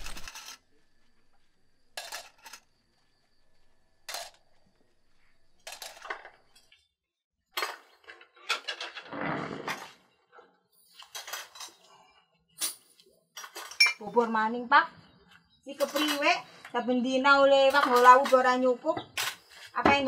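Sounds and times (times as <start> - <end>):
dishes and cutlery clinking: 12.6 - 14.0.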